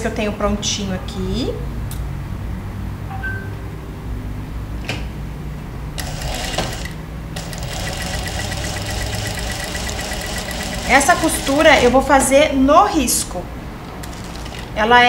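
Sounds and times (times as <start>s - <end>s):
sewing machine stitching: 6.0s - 12.0s, 14.0s - 14.8s.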